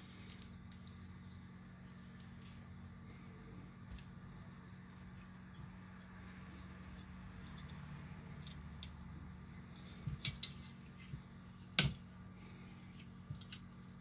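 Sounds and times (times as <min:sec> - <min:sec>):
steady low hum: 0:00.0 - 0:14.0
faint high chirping: 0:05.5 - 0:07.1, 0:08.8 - 0:11.3.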